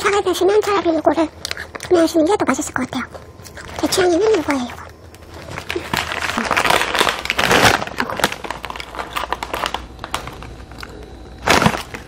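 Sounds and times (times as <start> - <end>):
plastic snack bag crackling: 3.2 - 12.0.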